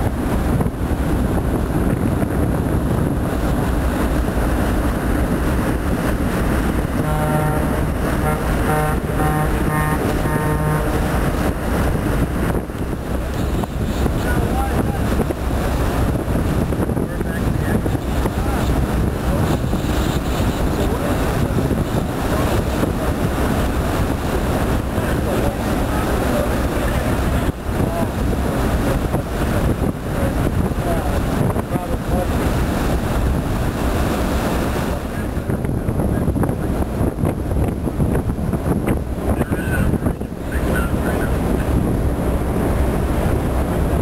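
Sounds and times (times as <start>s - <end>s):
boat engine rumbling: 0.0s - 44.0s
wind on microphone: 0.0s - 44.0s
short horn blasts: 7.0s - 11.3s.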